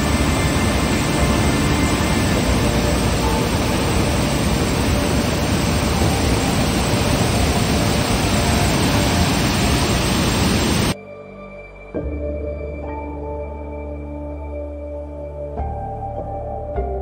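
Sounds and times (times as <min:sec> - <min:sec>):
waterfall rushing: 0:00.0 - 0:11.0.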